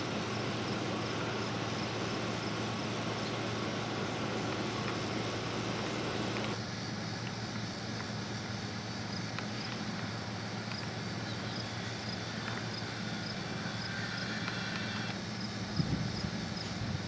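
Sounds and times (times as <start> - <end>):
low hum: 0.0 - 6.7
background hiss: 0.0 - 17.0
faint high ticking: 0.5 - 6.6.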